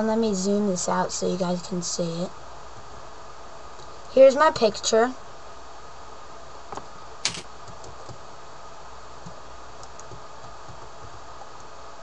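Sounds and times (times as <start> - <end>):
steady low hiss: 0.0 - 12.0
computer mouse clicks: 9.2 - 11.7.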